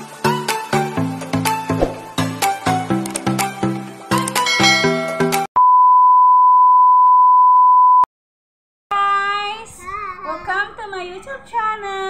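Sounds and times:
child's sing-song voice: 9.0 - 12.0.

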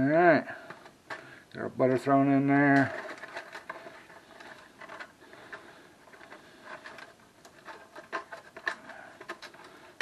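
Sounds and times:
aluminium foil crinkling: 2.4 - 10.0.

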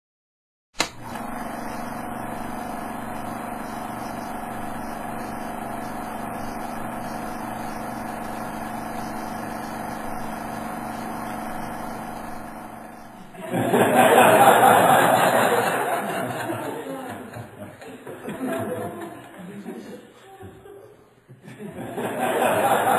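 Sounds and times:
mechanical whirr with low hum: 0.8 - 13.4.

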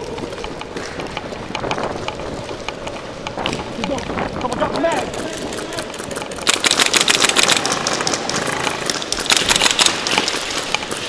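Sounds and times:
airsoft rifles firing bursts: 4.8 - 11.0.

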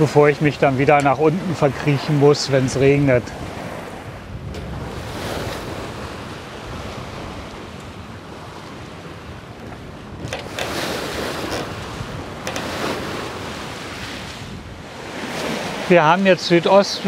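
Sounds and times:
wind buffeting microphone: 0.0 - 16.0
waves: 0.0 - 17.0
rushing water surges: 10.5 - 17.0.

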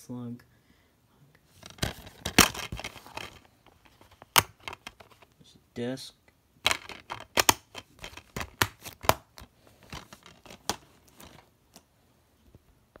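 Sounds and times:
plastic case clicks and taps: 6.7 - 9.5.

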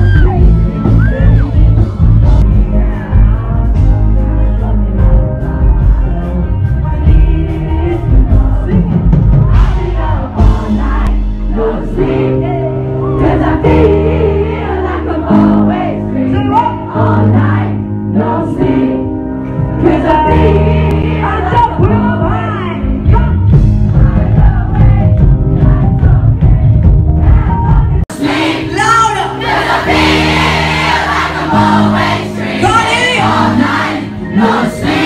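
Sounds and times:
man singing into a microphone: 0.0 - 11.0
pop-rock band playing: 0.0 - 35.0
crowd singing along: 1.5 - 35.0.

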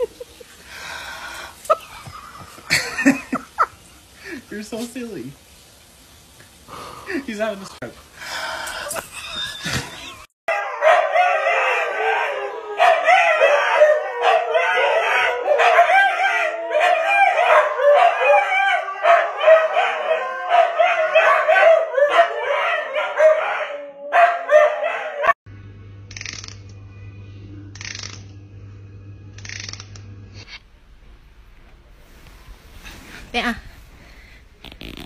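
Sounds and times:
huskies howling: 10.5 - 25.4.

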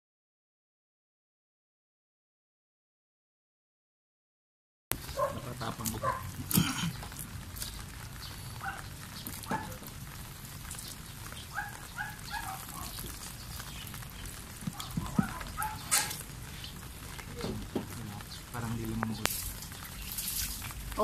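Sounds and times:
hose water splashing on glass: 4.9 - 21.0.

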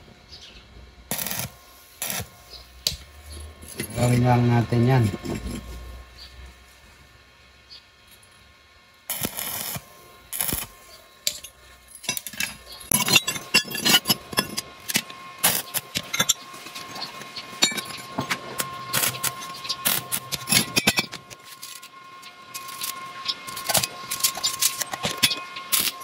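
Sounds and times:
metal scraping on concrete: 1.1 - 6.5, 10.4 - 26.0.

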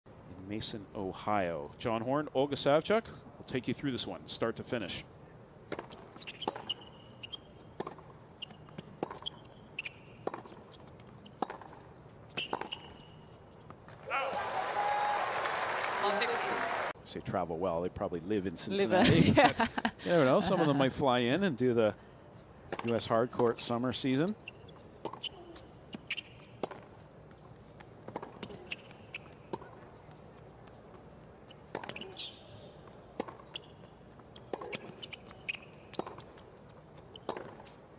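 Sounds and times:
rackets hitting tennis ball: 5.7 - 7.0, 7.6 - 14.0, 24.9 - 29.9, 30.9 - 37.9
shoes squeaking on court: 5.7 - 14.0, 22.7 - 37.9.

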